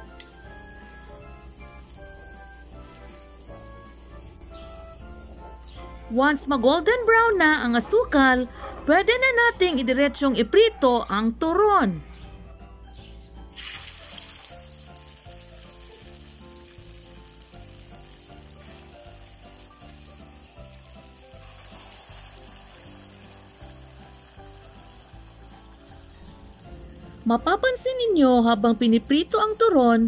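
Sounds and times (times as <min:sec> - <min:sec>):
deep-frying sizzle in oil: 0:00.0 - 0:05.7, 0:13.5 - 0:30.0.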